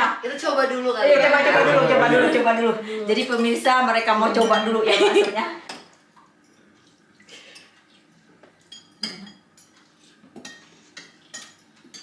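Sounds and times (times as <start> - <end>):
spoons clinking against bowls: 4.2 - 6.8, 7.5 - 12.0.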